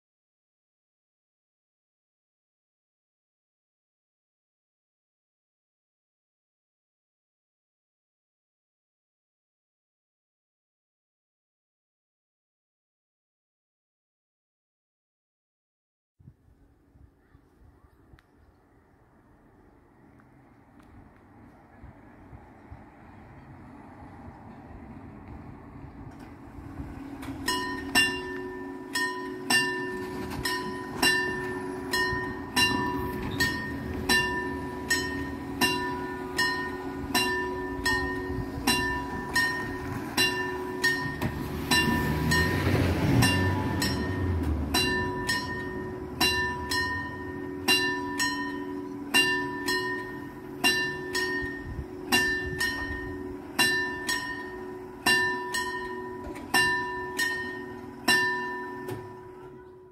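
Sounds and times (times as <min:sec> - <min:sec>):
car driving across tracks: 0:19.3 - 0:59.9
level crossing bell ringing: 0:27.4 - 0:59.9.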